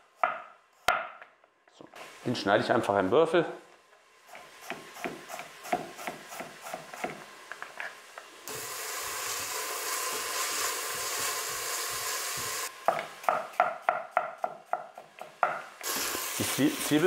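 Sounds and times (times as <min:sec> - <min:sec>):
onions sizzling in a pot: 0:02.0 - 0:03.1, 0:04.1 - 0:17.0.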